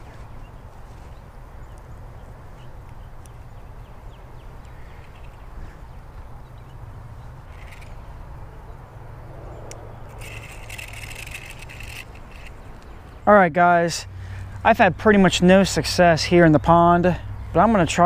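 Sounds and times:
bird calling: 0.0s - 6.8s, 7.4s - 8.1s
fishing reel whirring: 7.5s - 8.0s, 10.1s - 12.5s.

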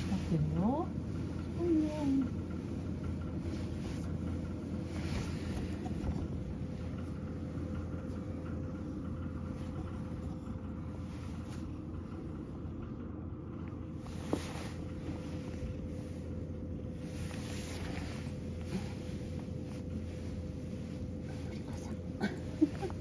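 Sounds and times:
fan heater humming: 0.0s - 23.0s
light rustles: 14.0s - 23.0s.

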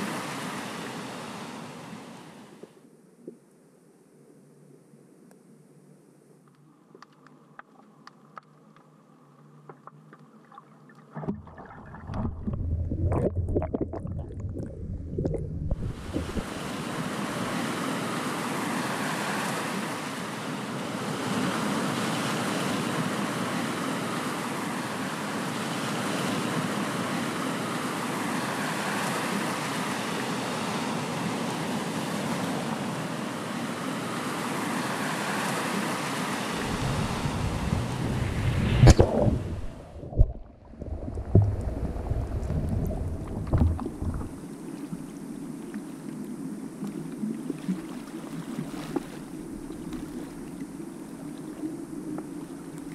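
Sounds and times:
muffled underwater ambience: 1.6s - 19.2s, 32.7s - 52.9s
faint clicks: 6.4s - 8.9s
water churning and splashing: 9.8s - 20.1s, 34.7s - 46.2s, 46.8s - 52.9s
seawater lapping against a wall: 40.2s - 44.4s.

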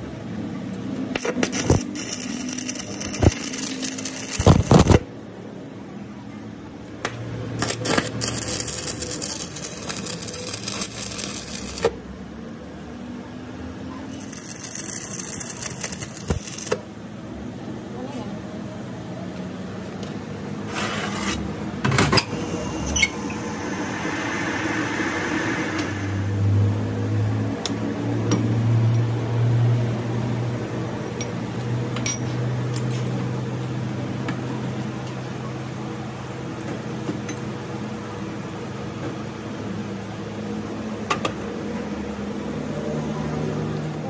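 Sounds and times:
low machine hum: 0.0s - 31.5s
brief hiss: 22.3s - 27.1s.

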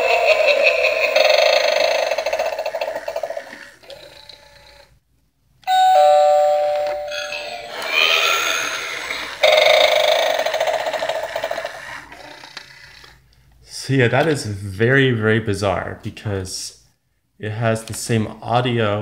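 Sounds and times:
two-note ding-dong chime: 5.7s - 7.8s
doorbell sound effects: 5.7s - 8.2s.

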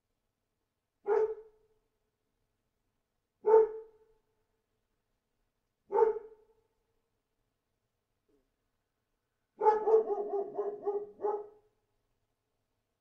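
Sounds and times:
dog barking: 1.0s - 1.5s, 3.4s - 4.0s, 5.9s - 6.4s, 9.6s - 11.6s.

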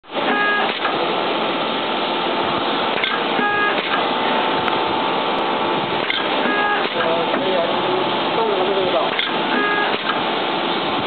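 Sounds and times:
machine whine: 0.1s - 11.0s
cutting machine hissing: 6.0s - 10.3s.

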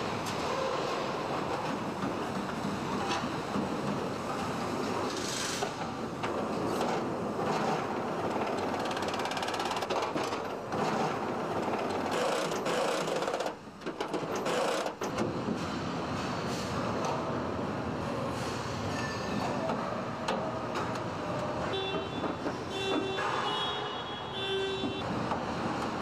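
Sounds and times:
assembly line mechanical clatter: 4.8s - 15.8s.

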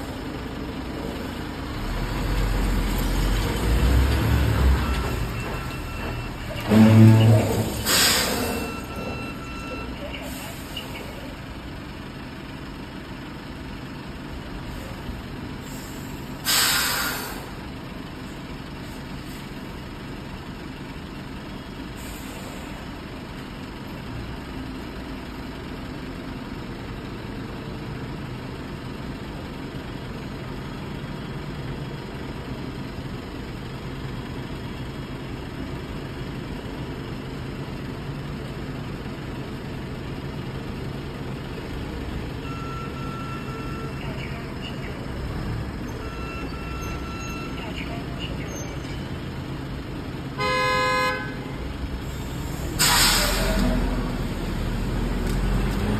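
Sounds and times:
diesel truck engine running: 0.0s - 55.9s
air brake hiss: 7.7s - 8.7s, 15.6s - 17.6s, 22.0s - 22.8s, 52.1s - 53.7s.

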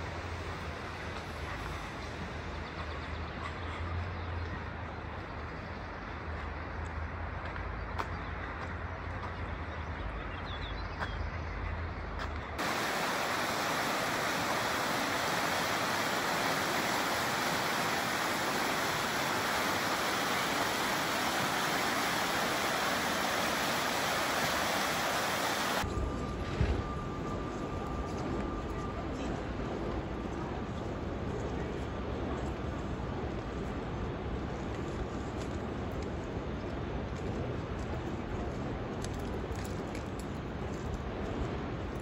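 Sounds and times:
river rushing over stones: 12.6s - 25.8s
faint steady whine: 12.6s - 32.8s.

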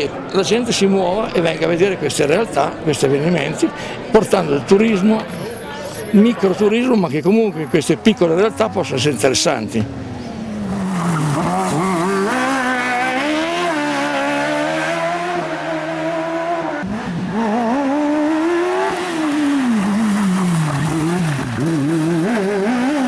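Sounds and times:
race car engines revving: 4.4s - 23.0s.

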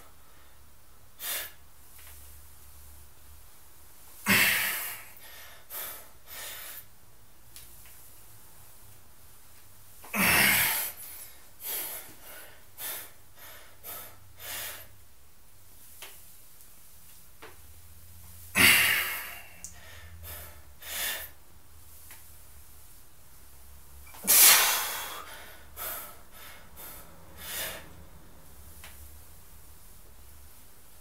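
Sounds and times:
person breathing heavily: 4.3s - 6.9s, 18.6s - 21.4s, 24.3s - 28.0s.

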